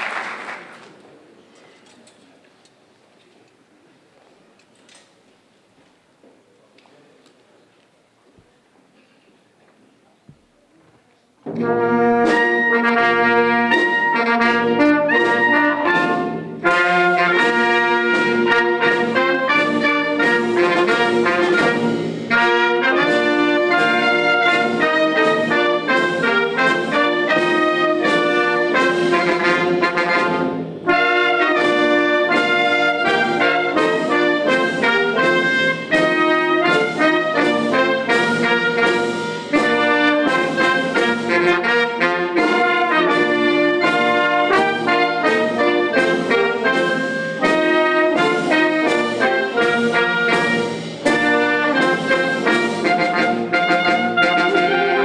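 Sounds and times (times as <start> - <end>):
military wind band playing: 11.5 - 55.0.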